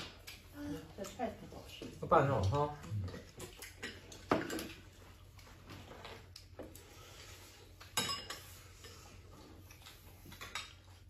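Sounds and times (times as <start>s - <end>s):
chopsticks clinking on bowls: 7.8s - 9.2s, 10.2s - 11.0s.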